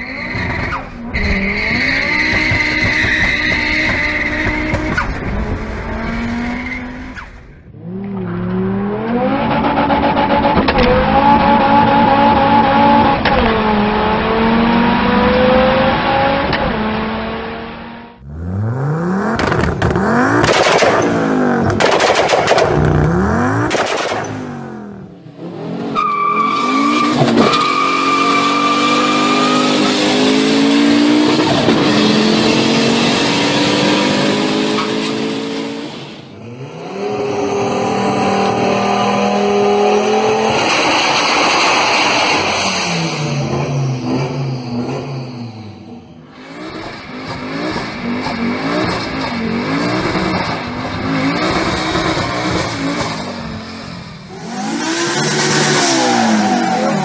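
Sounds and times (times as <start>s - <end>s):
car engine accelerating: 0.0s - 57.0s
exhaust revving: 0.0s - 57.0s
exhaust cracks: 19.3s - 24.6s.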